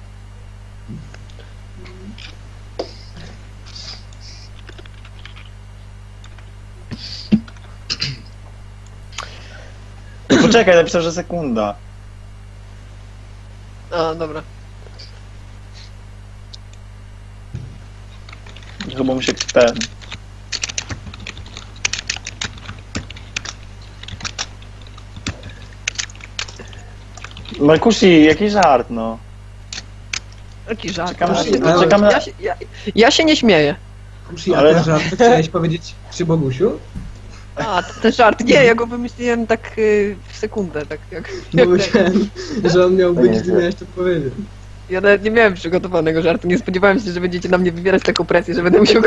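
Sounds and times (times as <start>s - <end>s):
steady low hum: 0.0s - 49.0s
keyboard typing clicks: 18.2s - 26.6s.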